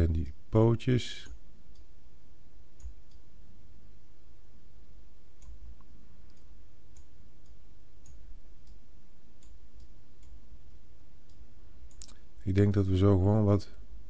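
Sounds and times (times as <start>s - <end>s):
steady low hum: 0.0s - 14.0s
computer mouse clicks: 2.8s - 3.3s, 5.4s - 8.8s, 9.4s - 12.2s.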